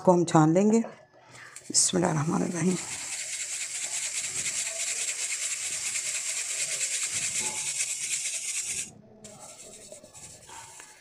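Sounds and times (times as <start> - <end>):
flour sifting through sieve: 1.6 - 11.0.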